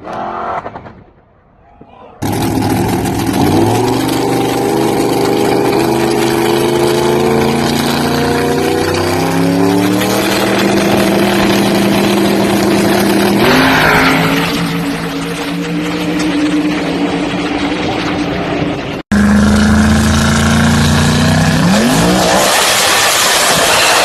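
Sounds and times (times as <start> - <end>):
drag car engine accelerating: 2.2 - 24.0.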